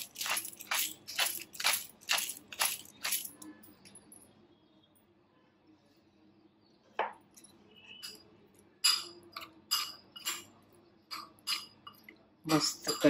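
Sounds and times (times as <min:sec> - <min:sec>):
spoon clinking against glass bowl: 0:00.0 - 0:03.6, 0:07.3 - 0:12.1.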